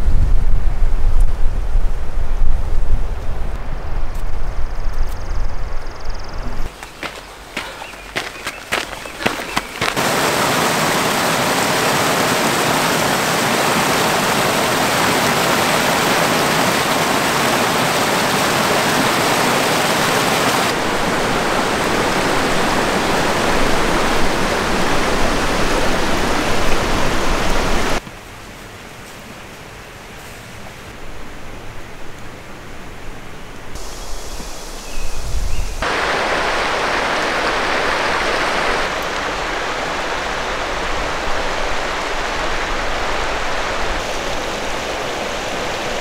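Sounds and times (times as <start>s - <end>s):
footsteps on dirt trail: 6.7s - 10.4s
creek rushing over rocks: 6.7s - 28.0s, 35.8s - 46.0s
faint hiss: 33.6s - 46.0s.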